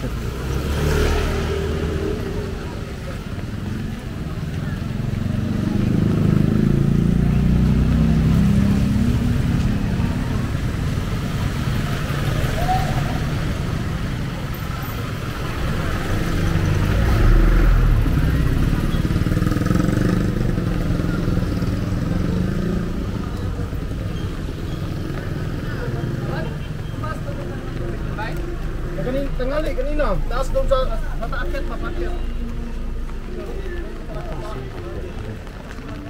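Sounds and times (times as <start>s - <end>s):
motorcycle tricycle engine running: 1.7s - 29.2s.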